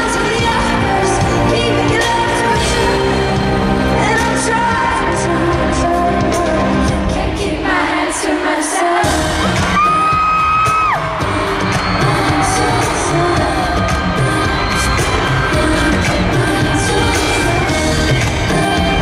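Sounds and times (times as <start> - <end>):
loud pop beat: 0.0 - 19.0
woman singing: 0.0 - 19.0
crowd screaming: 9.0 - 19.0.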